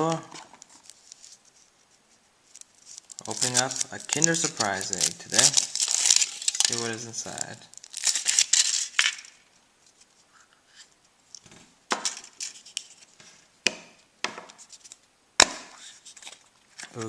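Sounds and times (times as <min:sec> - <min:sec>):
foil wrapper crinkling: 0:00.0 - 0:01.7, 0:02.4 - 0:10.2, 0:12.0 - 0:13.2, 0:15.8 - 0:17.0
plastic capsule handled: 0:00.1 - 0:01.6, 0:02.5 - 0:10.1
chocolate shell cracking: 0:02.5 - 0:09.4.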